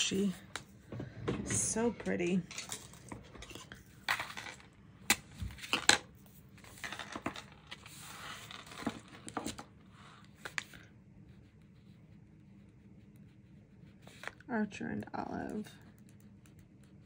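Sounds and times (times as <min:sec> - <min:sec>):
paper rustling: 0:05.5 - 0:09.7.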